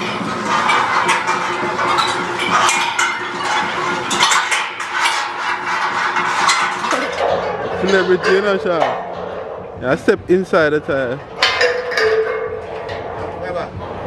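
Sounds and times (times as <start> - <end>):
metallic clinking and rattling: 0.0 - 14.0.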